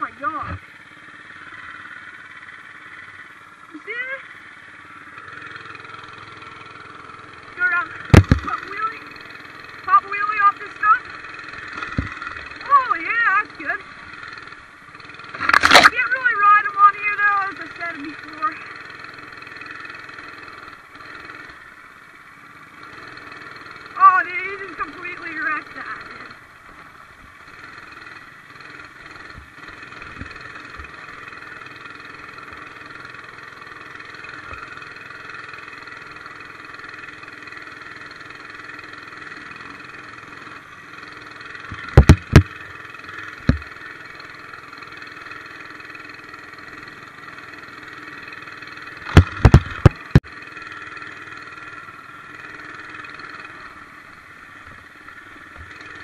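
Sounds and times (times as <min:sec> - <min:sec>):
mini bike engine running: 0:00.0 - 0:56.0
loud sharp knocks: 0:08.1 - 0:08.5, 0:41.9 - 0:42.6, 0:49.1 - 0:50.3.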